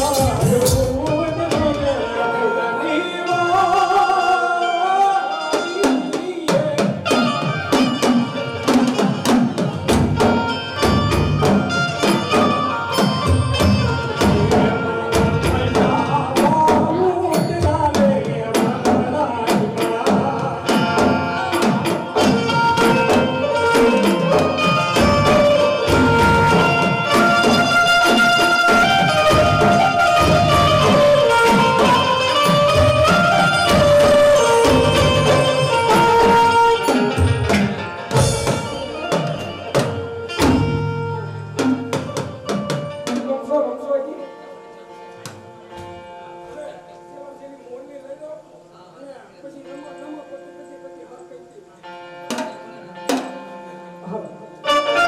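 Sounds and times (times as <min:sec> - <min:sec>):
rapid drum strokes: 0:00.0 - 0:02.2, 0:05.6 - 0:43.6
wavering folk melody: 0:00.0 - 0:47.8.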